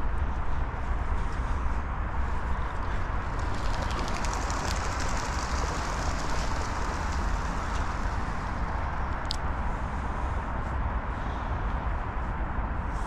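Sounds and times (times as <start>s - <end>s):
outdoor rumble and hiss: 0.0s - 13.0s
fine rapid ticking: 3.2s - 9.4s.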